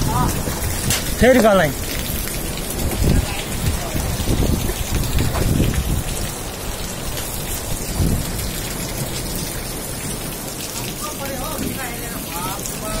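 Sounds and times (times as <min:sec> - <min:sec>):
heavy rain and hail clattering: 0:00.0 - 0:13.0.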